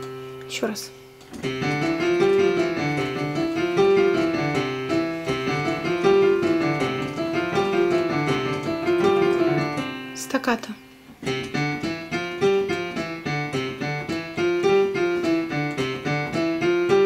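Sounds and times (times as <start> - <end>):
digital piano practice piece: 0.0 - 17.0.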